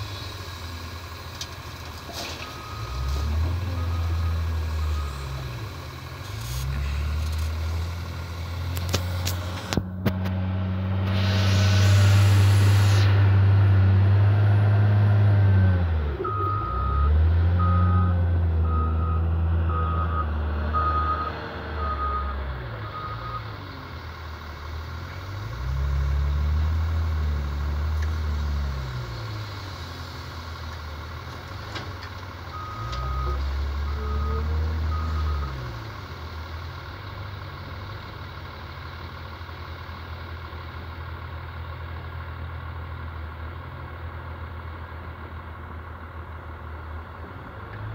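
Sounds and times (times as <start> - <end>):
wheel loader diesel engine revving: 0.0 - 47.9
reversing alarm beeps: 16.2 - 23.6, 32.6 - 35.7.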